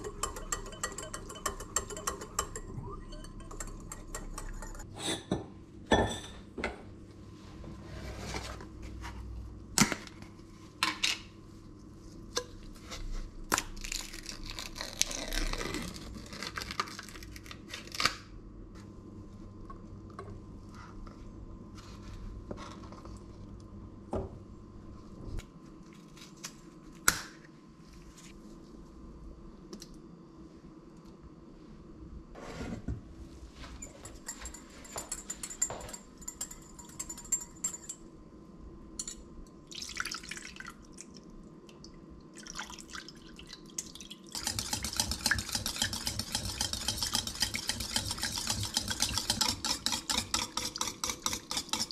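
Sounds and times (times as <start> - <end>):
knocks and clinks on steel bowl: 0.0 - 6.8
foil wrapper crinkling and tearing: 13.6 - 18.2.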